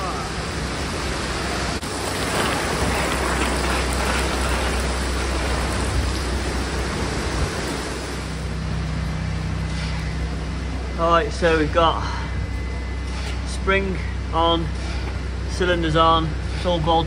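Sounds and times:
heavy rain on concrete: 0.0s - 8.5s.

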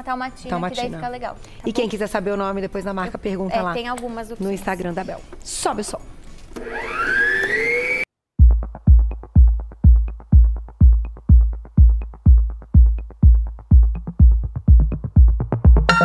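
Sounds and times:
electronic dance music: 8.4s - 16.0s
kick drum: 8.4s - 16.0s.

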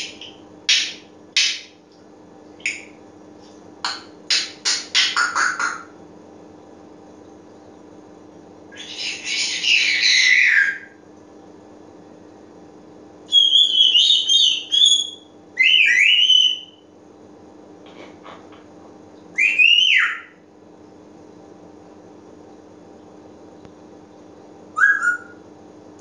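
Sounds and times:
parrot whistling and calling: 8.7s - 11.0s, 13.3s - 16.8s, 19.4s - 20.4s, 24.8s - 25.4s.

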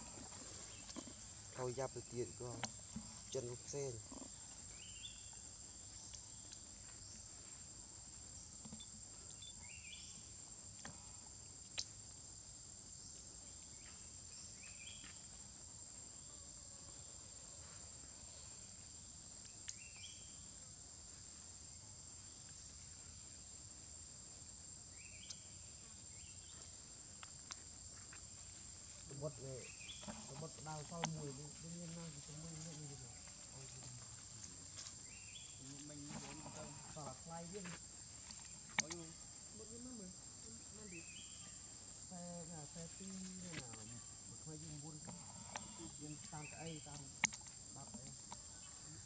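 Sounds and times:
insects droning: 0.0s - 49.0s.

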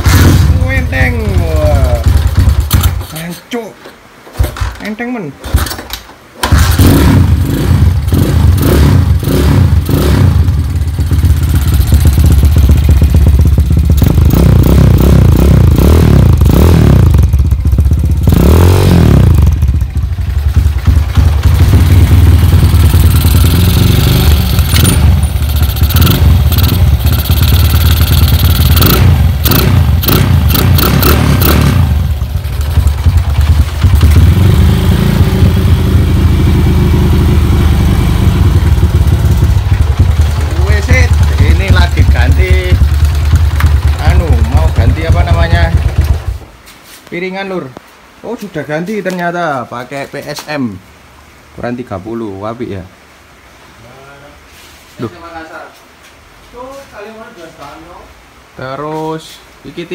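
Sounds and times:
motorcycle engine revving: 0.0s - 3.1s, 6.4s - 46.4s.

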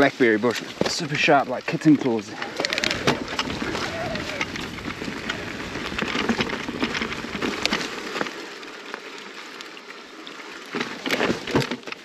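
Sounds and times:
bike tyres on rough trail: 0.0s - 12.0s
bike clattering: 2.1s - 8.3s.

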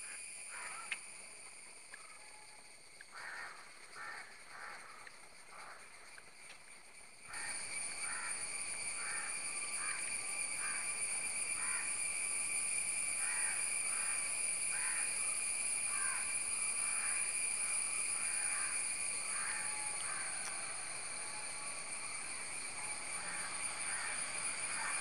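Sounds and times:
steady high-pitched whine: 0.0s - 25.0s
bird harsh crow-like calls: 13.2s - 15.1s, 15.9s - 16.2s, 19.3s - 20.7s, 23.2s - 25.0s.

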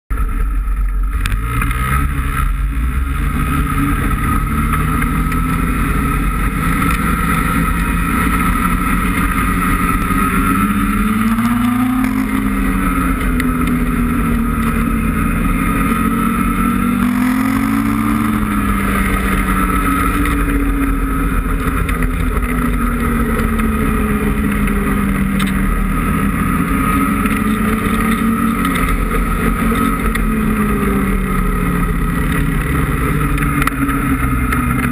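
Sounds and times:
snowmobile engine running: 0.1s - 34.9s.

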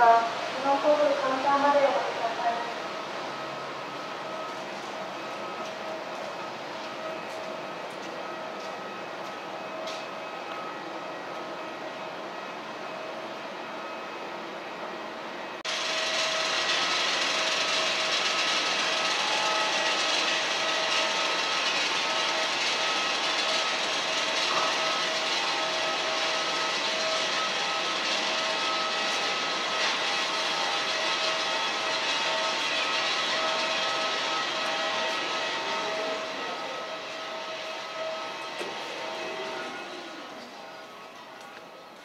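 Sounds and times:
airport terminal background noise: 0.0s - 42.0s
loud rushing hiss: 15.7s - 37.6s.

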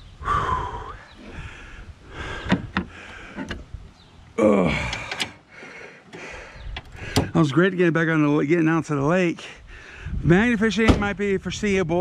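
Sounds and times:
man groaning sigh: 4.4s - 5.4s.

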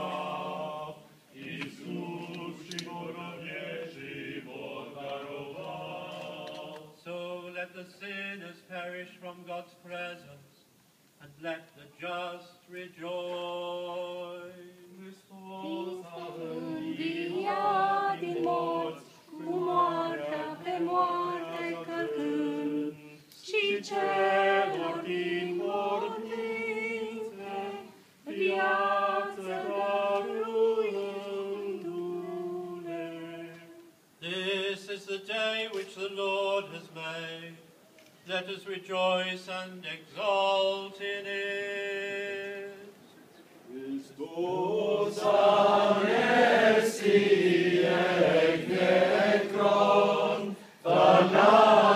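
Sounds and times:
voices chanting melody: 0.0s - 7.1s, 15.4s - 33.6s, 43.8s - 51.9s.

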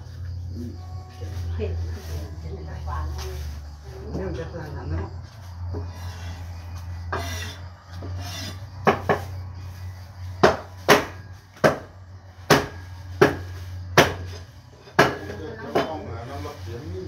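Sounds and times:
cleaver chopping on wooden board: 10.4s - 11.9s, 12.5s - 13.4s, 14.0s - 14.3s, 15.0s - 15.9s.

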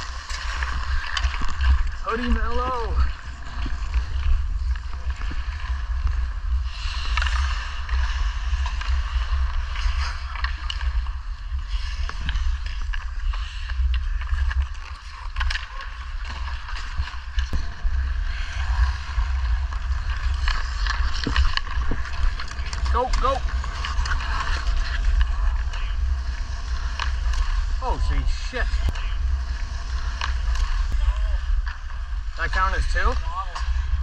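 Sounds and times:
ice skates scraping ice: 0.0s - 34.0s
low microphone rumble: 0.0s - 34.0s
hockey sticks clacking: 20.0s - 25.9s.

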